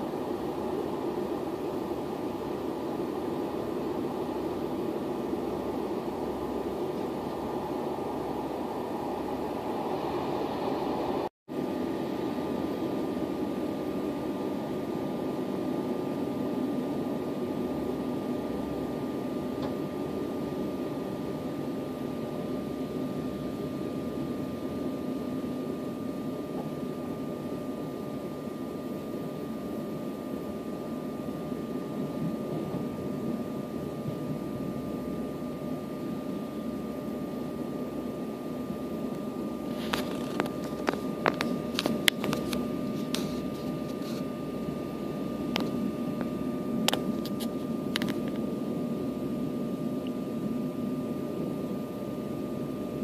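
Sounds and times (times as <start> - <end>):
train rumbling inside carriage: 0.0 - 11.3, 31.9 - 34.8
thin steady whine: 0.0 - 53.0.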